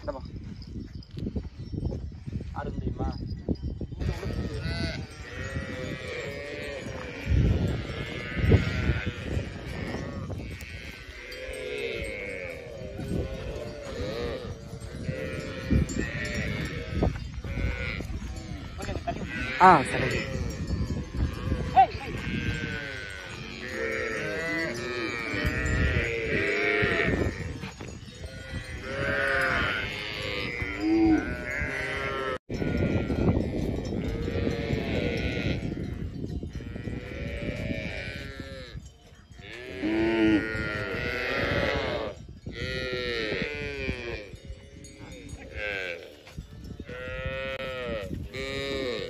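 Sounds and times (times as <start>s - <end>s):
cattle mooing: 18.6s - 20.5s, 28.4s - 32.4s, 46.9s - 49.0s.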